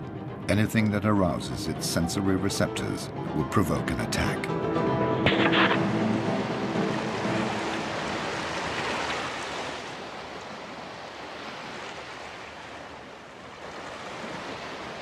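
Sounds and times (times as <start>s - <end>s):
sea waves washing: 5.3s - 15.0s.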